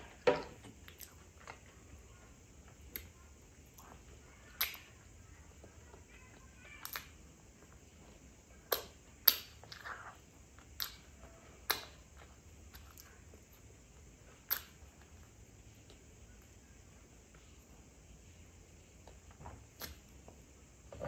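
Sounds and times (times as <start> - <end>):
mouth clicks and smacks eating: 0.8 - 1.8, 6.7 - 7.2, 8.7 - 13.5, 14.3 - 15.2.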